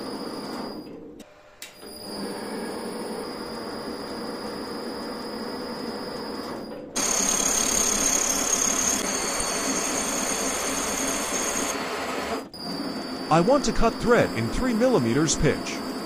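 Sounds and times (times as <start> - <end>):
lathe mechanical hum: 0.0 - 16.0
high steady whine: 12.8 - 16.0.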